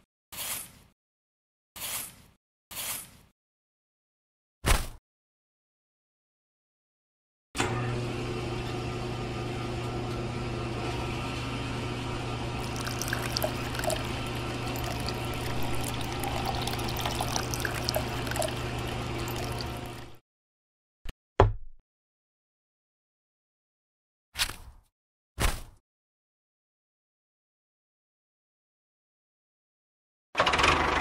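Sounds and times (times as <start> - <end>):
electric water pump humming: 11.6 - 20.2
water splashing and trickling: 12.6 - 20.2.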